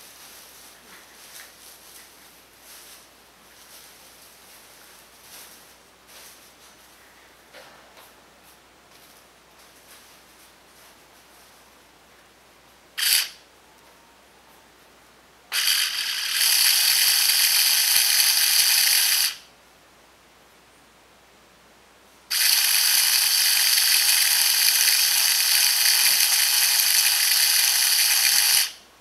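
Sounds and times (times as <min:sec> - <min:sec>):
electric power drill running: 0:13.0 - 0:13.3, 0:15.5 - 0:19.4, 0:22.3 - 0:28.8.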